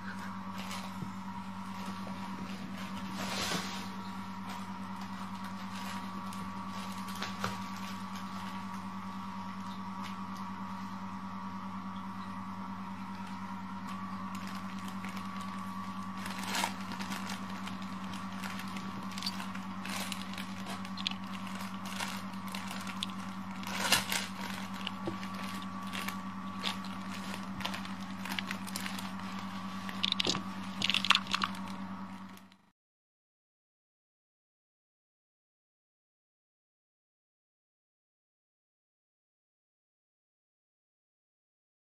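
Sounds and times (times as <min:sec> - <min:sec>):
steady electrical hum: 0:00.0 - 0:32.7
kittens scrabbling in fabric tunnel: 0:00.4 - 0:08.8, 0:14.3 - 0:31.7.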